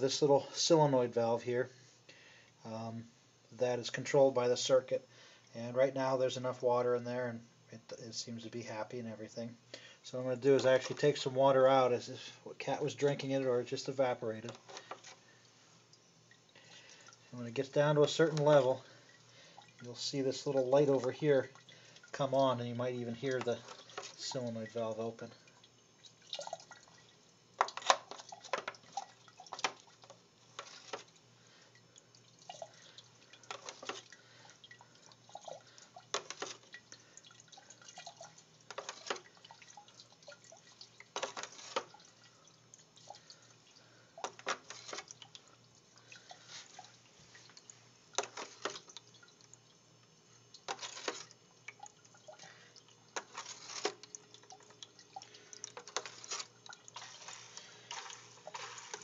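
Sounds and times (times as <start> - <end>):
water splashing and dripping: 15.9 - 59.0.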